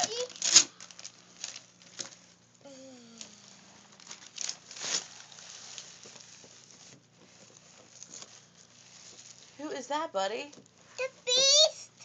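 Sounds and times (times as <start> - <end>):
wrapping paper rustling and tearing: 0.0 - 2.4, 3.2 - 9.8.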